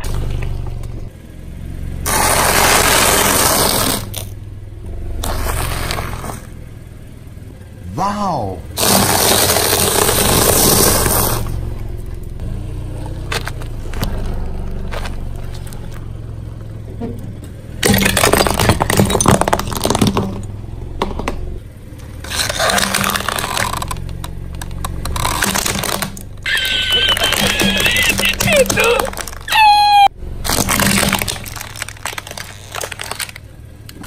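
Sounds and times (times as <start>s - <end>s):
low engine hum: 0.0s - 34.0s
tyre crunching and cracking objects: 2.1s - 4.4s, 8.8s - 34.0s.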